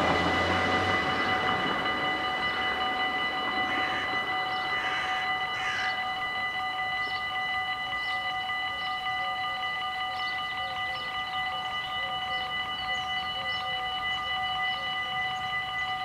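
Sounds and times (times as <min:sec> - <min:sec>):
electric train rumbling past: 0:00.0 - 0:16.0
level-crossing warning bells: 0:00.0 - 0:16.0.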